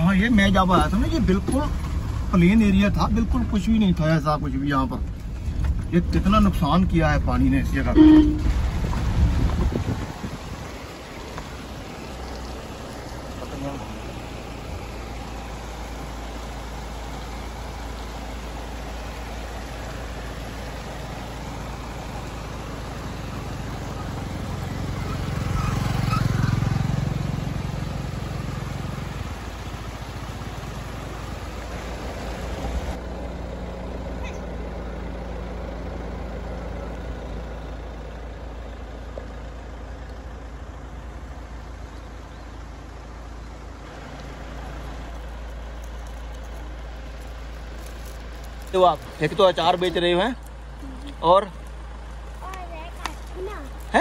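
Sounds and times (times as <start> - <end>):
outdoor background rush: 0.0 - 54.0
vehicle driving past: 8.1 - 38.3.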